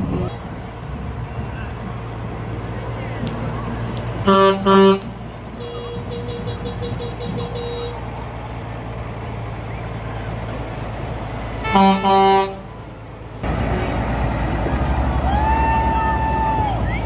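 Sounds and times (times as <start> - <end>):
vehicle engines rumbling: 0.0 - 17.0
vehicle horn: 4.2 - 8.0, 11.6 - 12.8.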